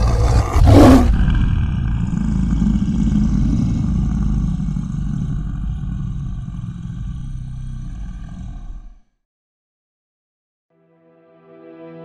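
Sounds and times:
deep rumble: 0.0 - 8.9.

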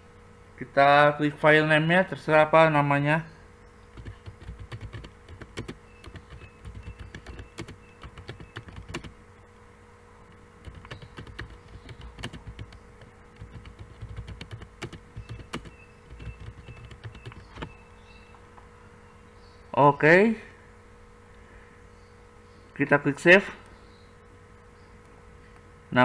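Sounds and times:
keyboard typing: 3.9 - 9.2, 10.3 - 17.8.

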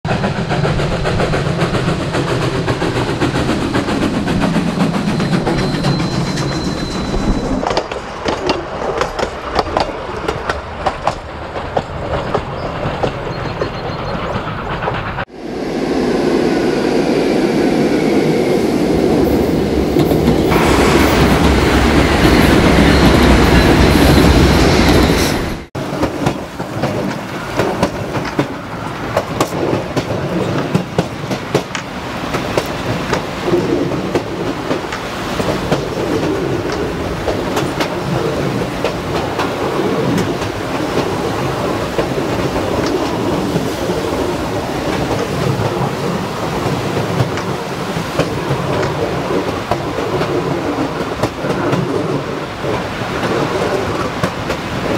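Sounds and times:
steam train running on track: 0.0 - 54.9
wheels clicking over rail joints: 0.5 - 15.2
steady rushing rumble: 14.4 - 54.9.

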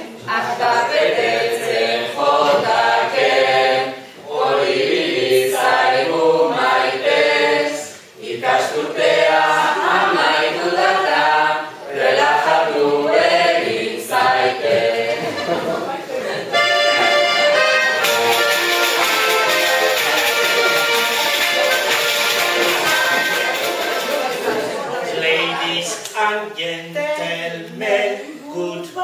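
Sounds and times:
group of voices singing: 0.0 - 29.0.

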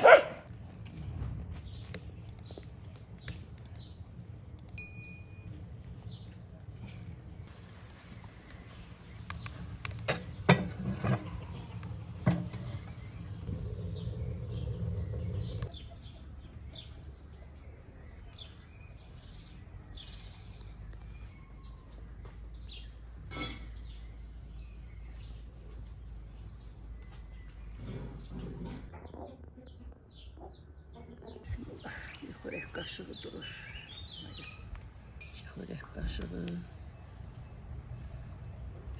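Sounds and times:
birds chirping: 0.0 - 38.9.

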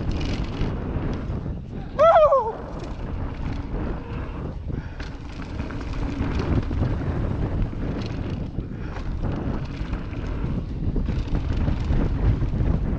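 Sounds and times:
wind buffeting microphone: 0.0 - 12.9
tyres rumbling on dirt: 2.6 - 12.9.

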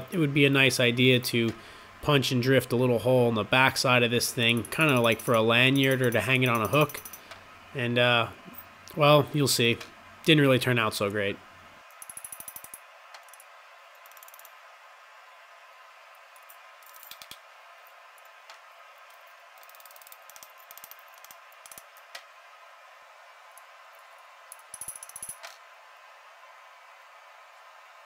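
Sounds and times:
steady faint hiss: 0.0 - 14.0.

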